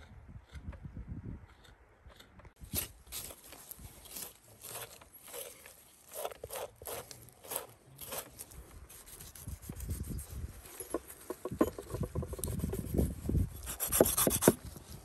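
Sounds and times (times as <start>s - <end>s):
knife cutting and scraping: 1.5s - 14.8s
rubbing and thudding on board: 13.7s - 14.6s.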